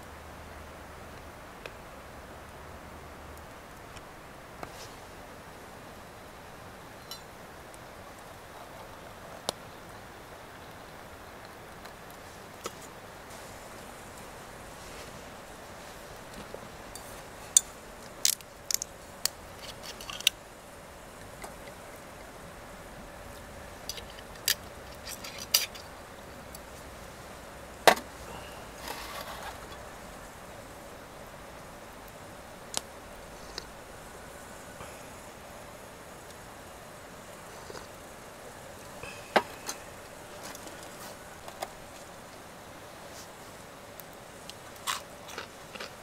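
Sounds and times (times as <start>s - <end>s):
rustling: 4.6s - 5.2s, 11.7s - 22.1s, 23.2s - 30.8s, 36.2s - 46.0s.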